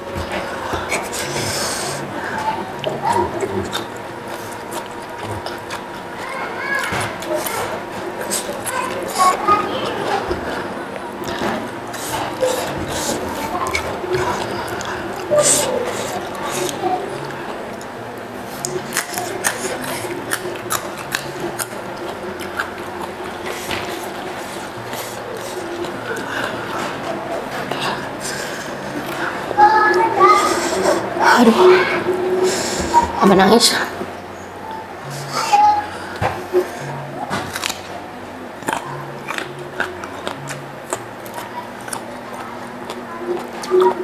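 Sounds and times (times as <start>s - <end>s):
crunchy chewing: 0.0s - 31.2s, 36.1s - 38.0s, 38.6s - 44.0s.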